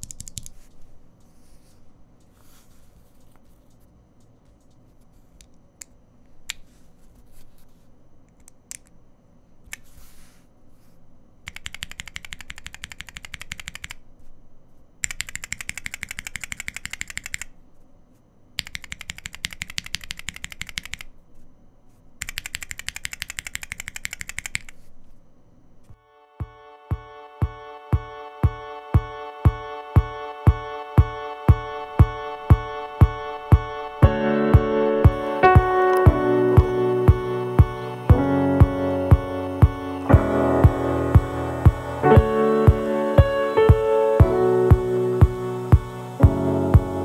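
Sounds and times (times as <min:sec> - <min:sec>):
keyboard switches clacking rapidly: 0:00.0 - 0:00.6, 0:11.5 - 0:14.0, 0:15.0 - 0:17.5, 0:18.6 - 0:21.1, 0:22.2 - 0:24.8.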